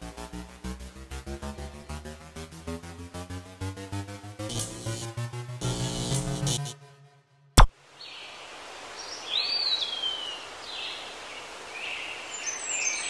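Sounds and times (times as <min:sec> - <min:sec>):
outdoor background noise: 0:07.7 - 0:13.0.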